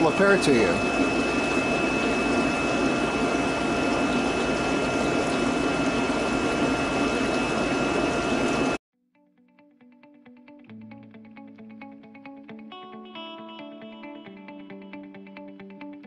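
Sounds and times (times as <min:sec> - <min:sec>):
aquarium pumps and water rushing: 0:00.0 - 0:08.8
faint high whine: 0:00.0 - 0:08.8.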